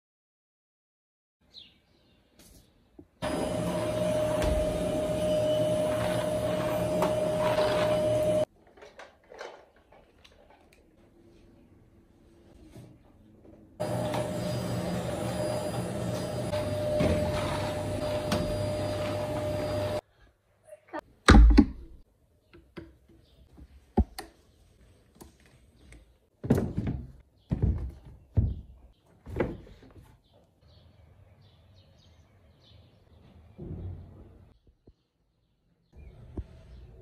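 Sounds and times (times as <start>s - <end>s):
vacuum cleaner whining: 3.2s - 8.5s, 13.8s - 20.0s.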